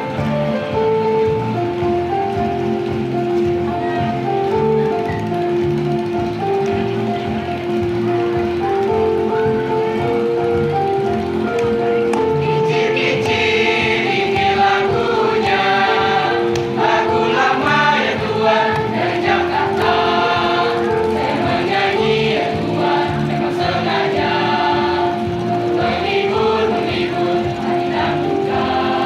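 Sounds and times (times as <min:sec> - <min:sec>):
children's choir singing: 0:11.7 - 0:29.0.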